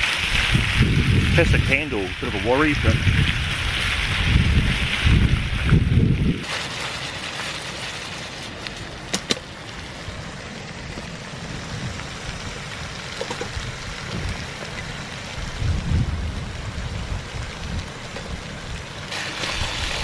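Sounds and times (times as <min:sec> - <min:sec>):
bacon sizzling in a frying pan: 0:00.0 - 0:07.5, 0:11.5 - 0:20.0.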